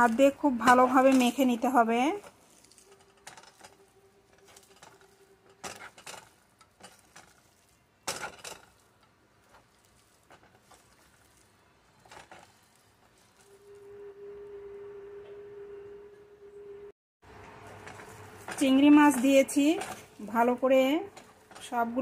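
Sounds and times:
hand mixing food rustling: 0:00.0 - 0:13.8, 0:17.3 - 0:22.0
faint steady hum: 0:13.6 - 0:16.9.

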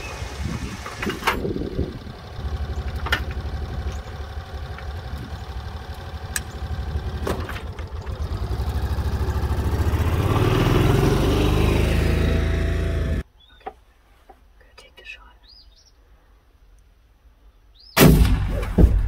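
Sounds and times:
utility vehicle engine idling and revving: 0:00.0 - 0:13.3
sharp clicks: 0:02.8 - 0:08.2.

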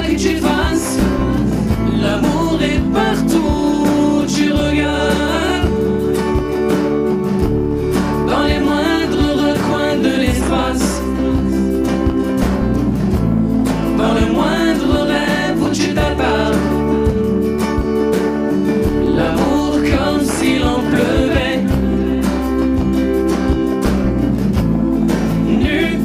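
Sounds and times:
man singing: 0:00.0 - 0:07.0, 0:08.2 - 0:12.4, 0:13.9 - 0:17.6, 0:18.7 - 0:23.2, 0:25.3 - 0:26.0
bass line: 0:00.0 - 0:26.0
light percussion: 0:00.0 - 0:26.0
strummed acoustic guitar: 0:00.0 - 0:26.0.

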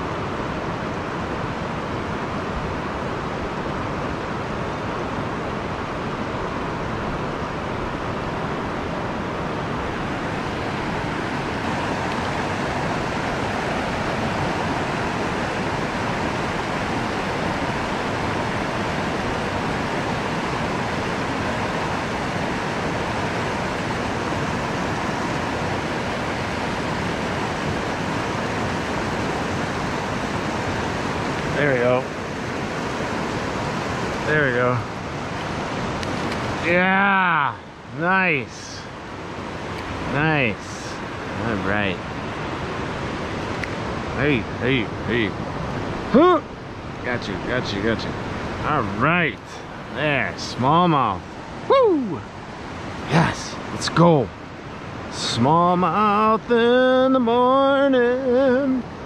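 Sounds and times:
river rushing over rocks: 0:00.0 - 0:59.0.

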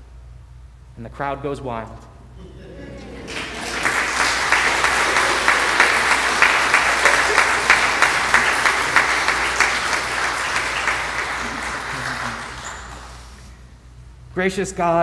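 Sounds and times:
crowd applauding: 0:02.9 - 0:13.6.

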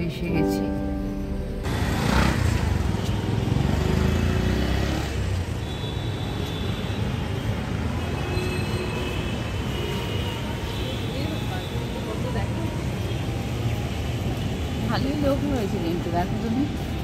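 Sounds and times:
road traffic hum: 0:00.0 - 0:17.0.

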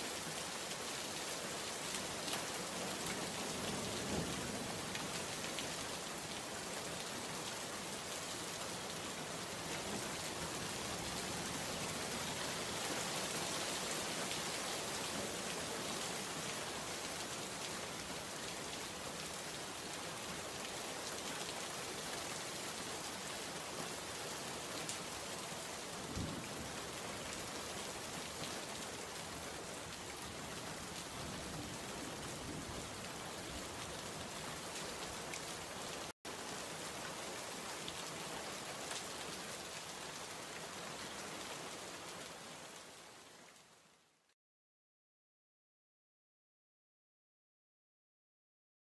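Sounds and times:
heavy rain on leaves and road: 0:00.0 - 0:44.3.

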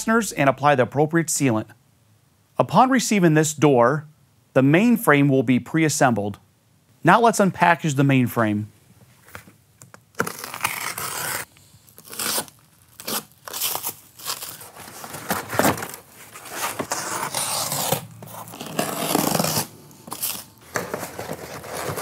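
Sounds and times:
packaging ripping and crinkling: 0:10.1 - 0:22.0.

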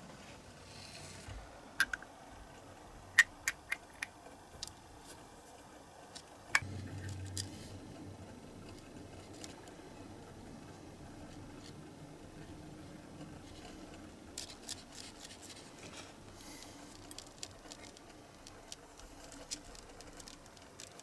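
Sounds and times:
faint low hum: 0:00.0 - 0:21.0.

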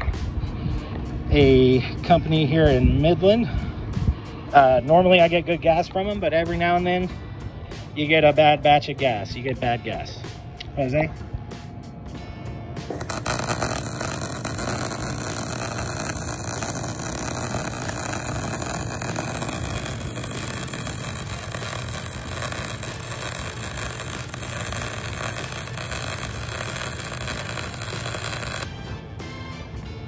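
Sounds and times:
welding arc crackling: 0:13.0 - 0:28.8.

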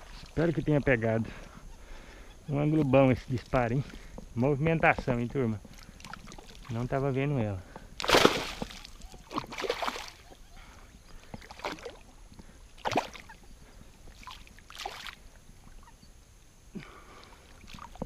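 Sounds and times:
water splashing: 0:08.0 - 0:10.3, 0:11.4 - 0:12.1, 0:12.8 - 0:13.4, 0:14.1 - 0:15.2.

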